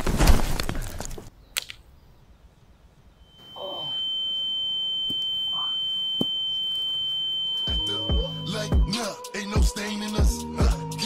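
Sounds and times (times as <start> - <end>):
high-pitched ringing tone: 3.2 - 8.8.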